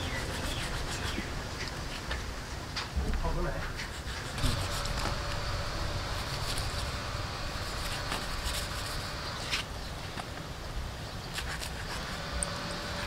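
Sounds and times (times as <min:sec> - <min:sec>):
knife scraping hide: 0:00.0 - 0:02.1, 0:03.7 - 0:09.7, 0:11.3 - 0:13.0
outdoor background noise: 0:00.0 - 0:13.0.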